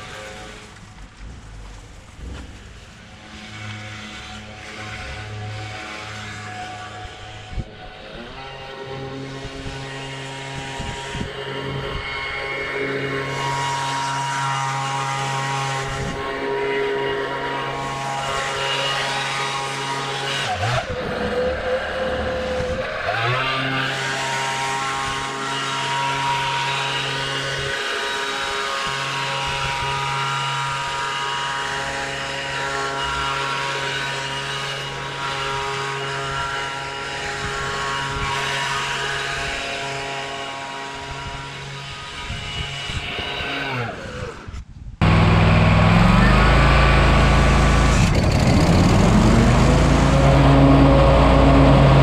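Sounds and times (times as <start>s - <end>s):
mower engine running: 45.0s - 52.0s.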